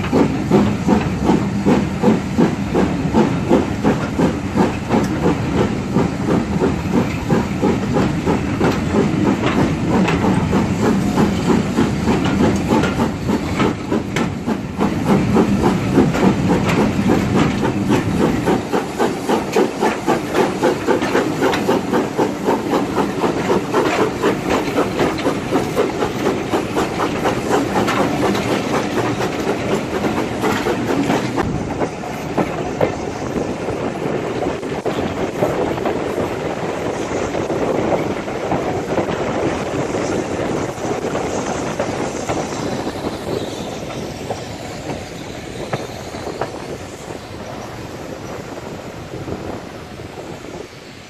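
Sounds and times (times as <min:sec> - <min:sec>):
steam hiss: 0:00.0 - 0:51.0
steam locomotive chuffing: 0:00.0 - 0:51.0.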